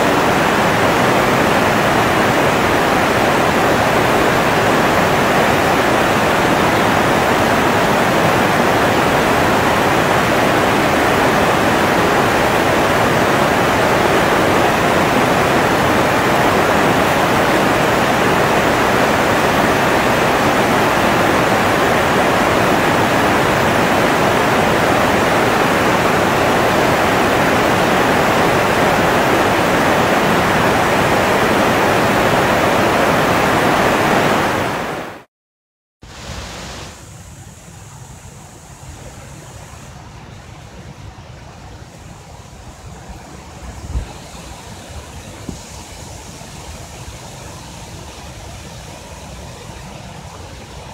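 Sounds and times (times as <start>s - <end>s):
river rushing: 0.0s - 35.3s, 36.1s - 50.9s.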